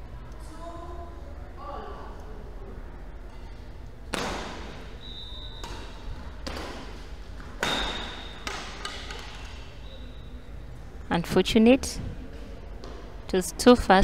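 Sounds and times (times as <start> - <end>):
racket hitting shuttlecock: 4.1 - 4.9, 5.6 - 9.7
shoes squeaking on court: 4.9 - 10.4.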